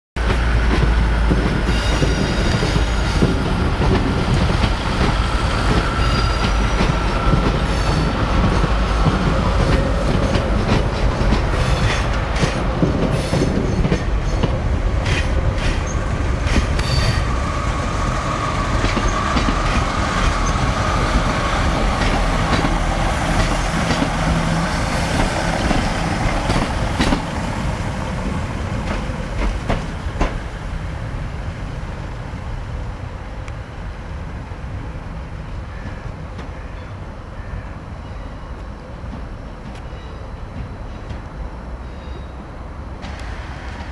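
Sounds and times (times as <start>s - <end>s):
wheels clicking over rail joints: 0.2s - 17.2s, 18.7s - 24.4s, 25.1s - 27.4s
diesel train rumble: 0.2s - 43.9s
high wheel squeal: 1.7s - 3.3s, 5.2s - 8.4s, 16.8s - 17.4s.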